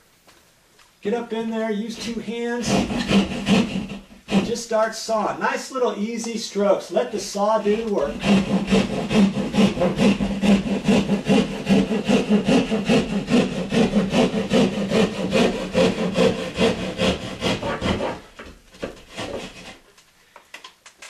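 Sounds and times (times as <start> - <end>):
hand saw cutting drywall: 2.0 - 4.9, 7.6 - 19.9.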